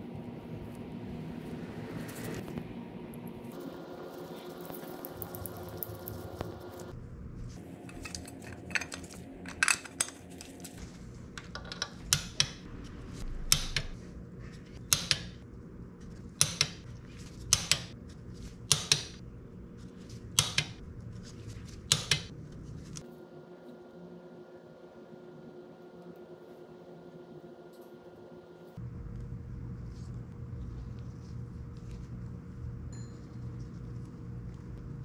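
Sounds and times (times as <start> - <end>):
metal parts clinking: 7.8 - 10.6.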